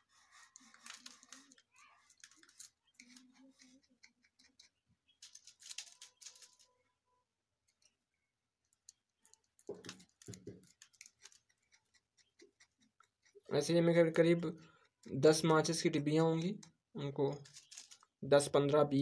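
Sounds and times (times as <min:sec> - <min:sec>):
tweezers scratching matchsticks: 0:00.0 - 0:06.7, 0:08.8 - 0:18.1
crumbs falling onto paper: 0:05.2 - 0:06.7, 0:09.6 - 0:11.0.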